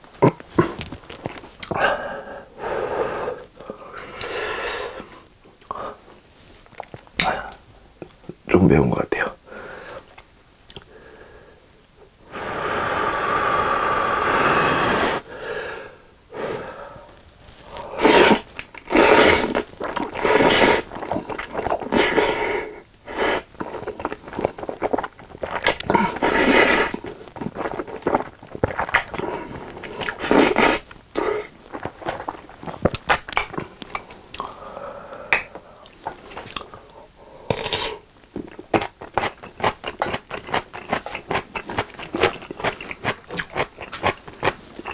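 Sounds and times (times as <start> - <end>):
noodles slurping: 17.5 - 34.5
wet chewing: 17.6 - 34.5, 38.4 - 44.9.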